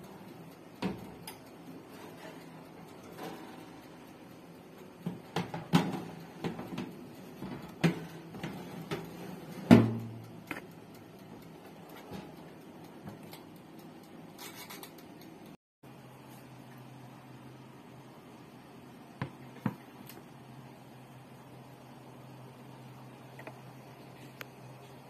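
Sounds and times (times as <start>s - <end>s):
metal baking tray clattering: 3.0s - 3.8s, 5.1s - 10.2s.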